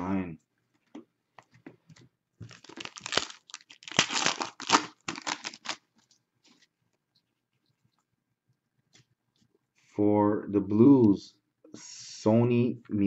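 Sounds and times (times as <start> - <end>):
plastic wrapper crinkling: 2.4 - 6.2
tearing rustles: 2.5 - 5.8.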